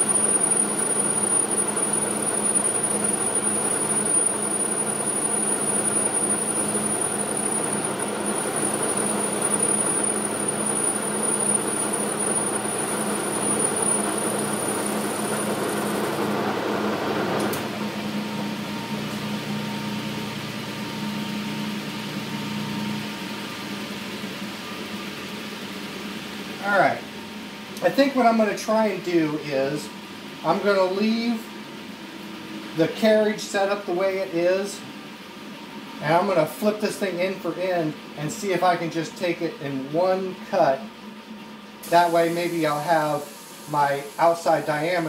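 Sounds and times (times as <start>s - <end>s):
thin high machine tone: 0.0s - 16.0s
metal lathe running: 0.0s - 16.9s.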